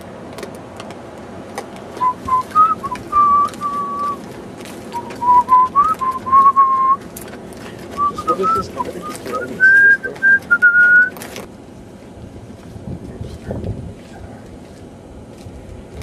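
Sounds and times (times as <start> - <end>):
person whistling a tune: 2.0 - 4.2, 4.9 - 7.0, 8.0 - 11.1.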